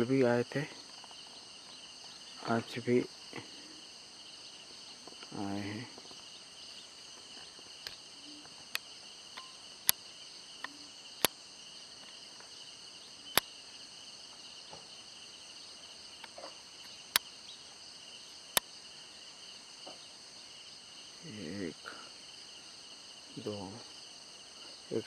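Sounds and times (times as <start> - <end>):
insects chirring: 0.0 - 25.0
sharp clicks: 13.3 - 13.5.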